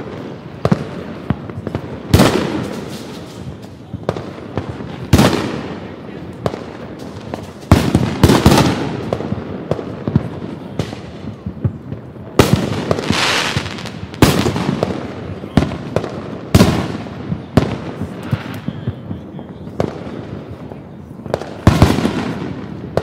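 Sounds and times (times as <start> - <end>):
firework bangs: 0.0 - 23.0
small firework pops: 0.6 - 23.0.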